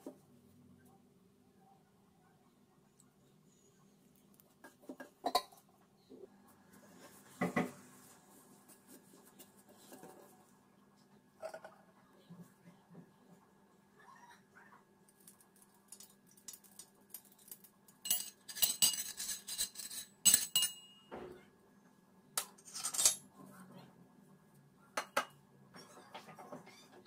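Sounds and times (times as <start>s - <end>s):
steel spoon clinking in metal press: 18.0s - 21.0s.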